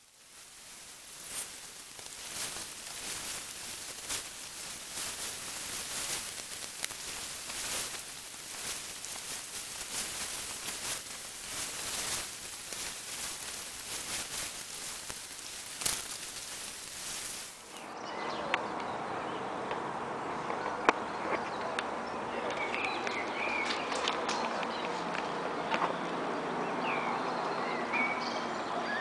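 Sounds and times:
hiss with rapid crackles: 0.0 - 17.9
steady outdoor noise: 0.0 - 29.0.

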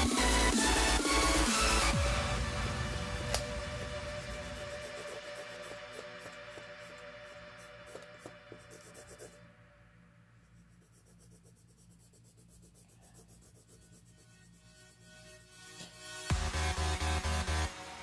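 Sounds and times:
pencil scratching on paper: 1.1 - 9.4, 10.4 - 15.7.

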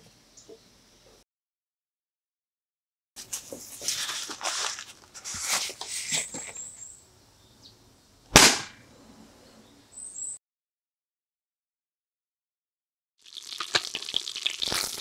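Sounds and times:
paper towel rustling: 3.2 - 6.6
sharp smack of swatting: 8.3 - 8.8.

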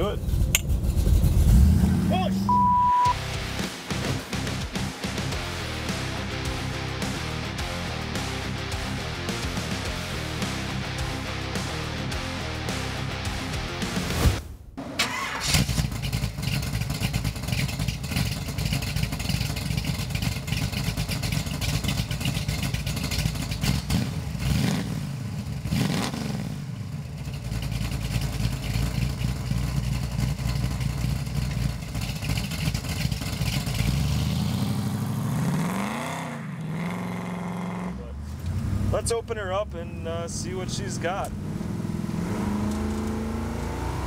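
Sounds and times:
car engine running: 0.0 - 44.0
car accelerating away: 0.3 - 14.1, 23.5 - 26.6, 27.6 - 39.4, 40.2 - 44.0.

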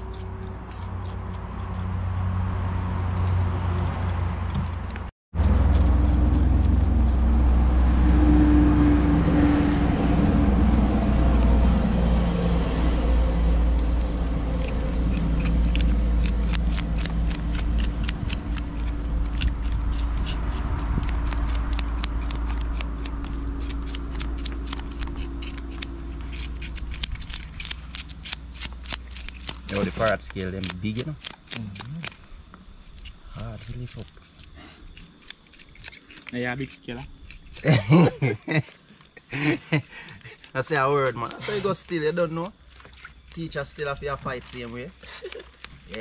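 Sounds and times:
knife scraping fish scales: 0.0 - 1.8, 13.4 - 37.9
engine rumbling: 0.0 - 46.0.

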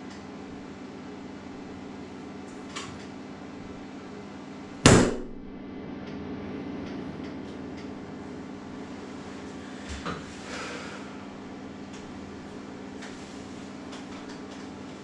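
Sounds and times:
steady low hum: 3.2 - 14.0
hand slapping tiled wall: 4.9 - 5.6.

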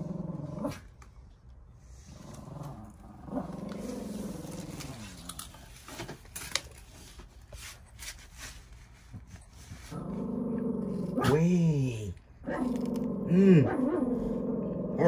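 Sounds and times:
dog growling whine: 0.0 - 0.9, 2.1 - 5.3, 9.9 - 11.7, 12.4 - 15.0
tortoises biting lettuce: 1.9 - 5.8, 10.5 - 14.1.

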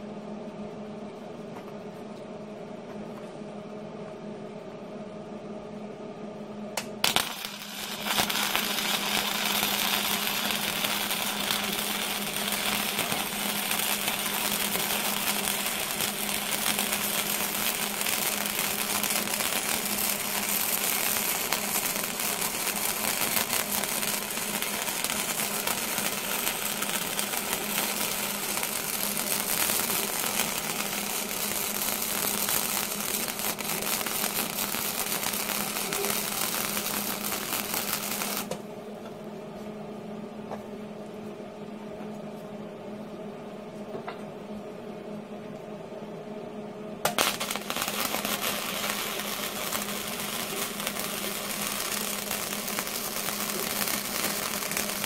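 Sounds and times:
steady hum: 0.0 - 55.0
welding arc crackling: 6.8 - 38.6, 47.0 - 55.0.

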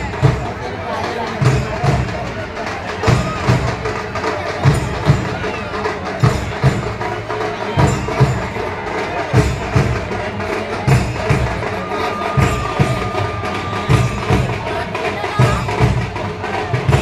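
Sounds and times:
crowd chatter: 0.0 - 17.0
drums beating low thumps: 0.0 - 17.0.

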